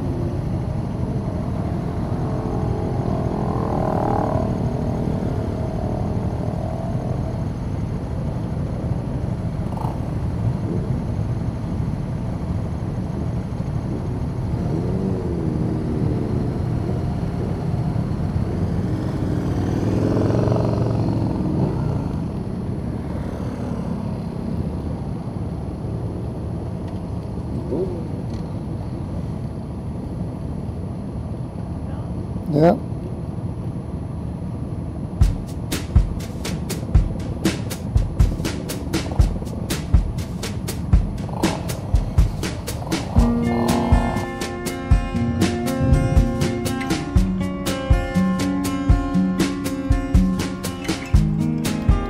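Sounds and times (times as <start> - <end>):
motorcycles passing by: 0.0 - 11.2, 13.8 - 25.2, 35.2 - 52.0
motorcycle engines running: 0.0 - 31.4, 35.1 - 52.0.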